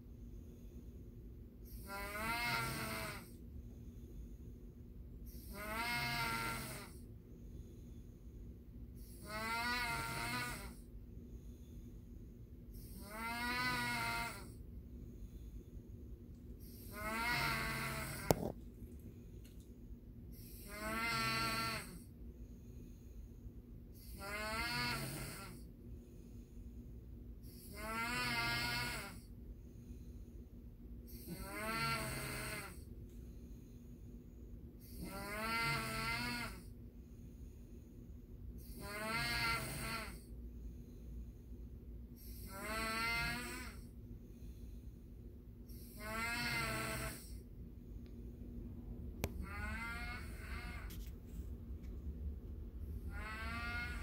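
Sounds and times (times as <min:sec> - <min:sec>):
man snoring: 0:01.7 - 0:03.4, 0:05.3 - 0:07.0, 0:09.0 - 0:10.8, 0:12.8 - 0:14.6, 0:16.6 - 0:18.6, 0:20.4 - 0:22.1, 0:24.0 - 0:25.7, 0:27.5 - 0:29.3, 0:31.1 - 0:32.8, 0:34.8 - 0:36.7, 0:38.6 - 0:40.2, 0:42.2 - 0:43.9, 0:45.7 - 0:47.4, 0:49.4 - 0:51.0, 0:53.0 - 0:54.0.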